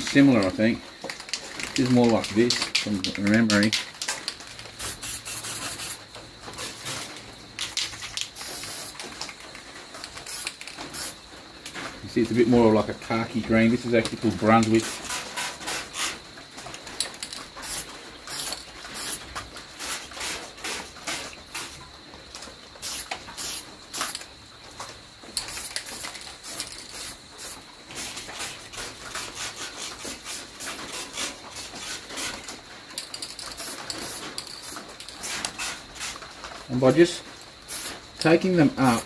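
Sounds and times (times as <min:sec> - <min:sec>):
spray-paint can hissing: 0:04.8 - 0:09.0, 0:10.1 - 0:11.2, 0:14.8 - 0:16.2, 0:17.2 - 0:19.2, 0:22.8 - 0:24.3, 0:25.4 - 0:32.5, 0:33.1 - 0:36.2, 0:37.7 - 0:38.0.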